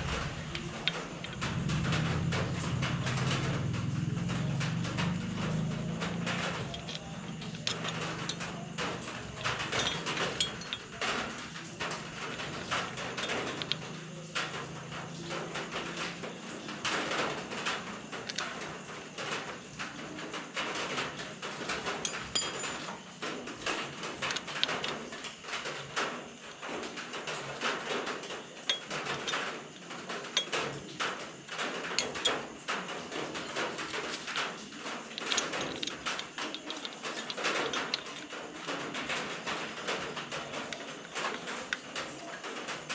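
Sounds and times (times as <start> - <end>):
light metal clicks and taps: 4.8 - 14.6, 30.3 - 42.1.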